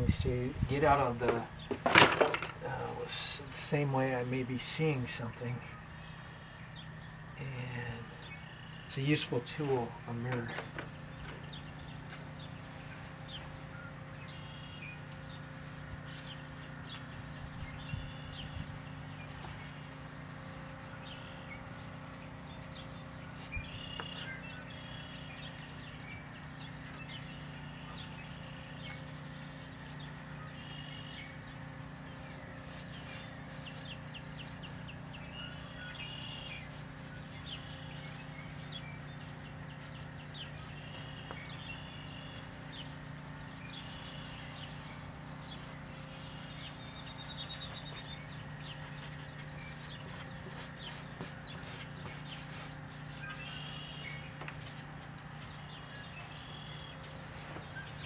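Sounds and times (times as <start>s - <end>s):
songbirds chirping: 0.0s - 58.0s
steady low hum: 0.0s - 58.0s
charcoal scratching on paper: 16.1s - 17.8s, 27.9s - 30.1s, 32.6s - 35.0s, 42.2s - 48.2s, 50.0s - 54.2s.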